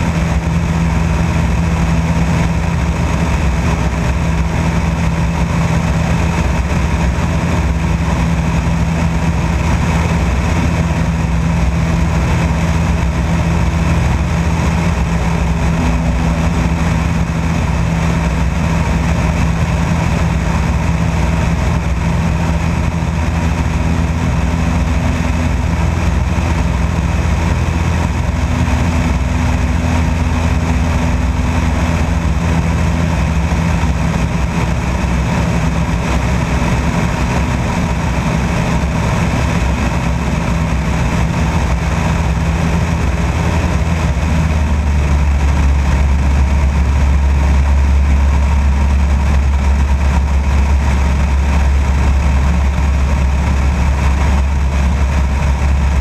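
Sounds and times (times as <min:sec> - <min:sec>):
aircraft engine and propeller drone: 0:00.0 - 0:56.0
wind noise: 0:00.0 - 0:56.0.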